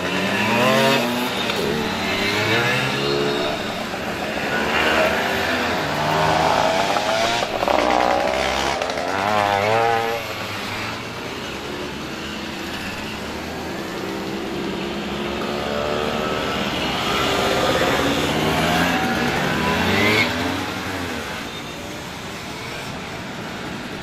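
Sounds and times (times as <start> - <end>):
two-stroke mopeds riding past: 0.0 - 11.8.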